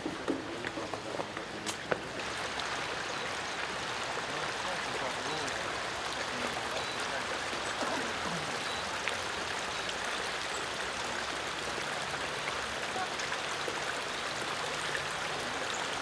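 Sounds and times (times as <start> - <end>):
stream running over rocks: 0.0 - 16.0.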